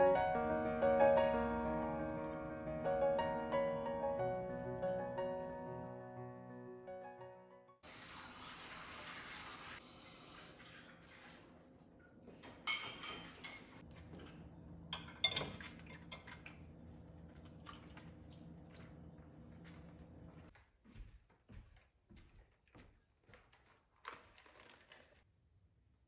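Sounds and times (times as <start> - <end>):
dishes clinking in a dish rack: 12.4 - 16.6.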